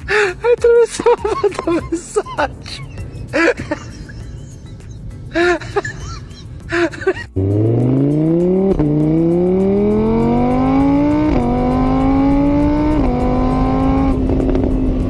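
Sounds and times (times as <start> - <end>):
motorbike engine revving: 7.4 - 15.0.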